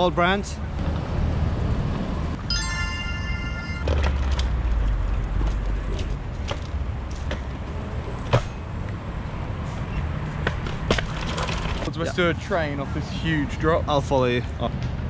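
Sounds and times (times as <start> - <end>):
scooter rumbling over cobblestones: 0.8 - 2.4, 3.8 - 8.5, 10.4 - 12.2.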